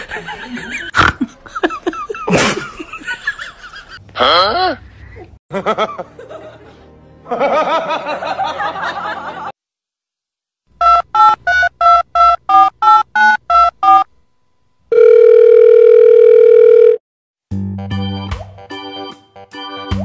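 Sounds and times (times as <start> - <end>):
dial tone: 14.9 - 17.0.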